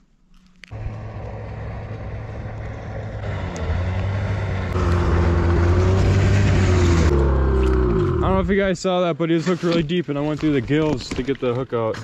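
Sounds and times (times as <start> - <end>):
vehicle engine humming: 0.6 - 8.8.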